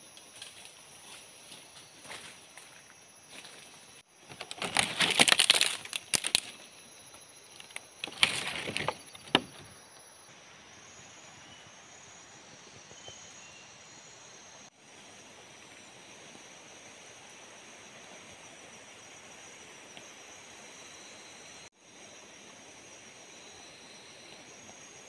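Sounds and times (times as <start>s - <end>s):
footsteps through dry leaves: 4.3s - 6.6s
twigs snapping: 4.3s - 6.6s, 7.5s - 9.6s.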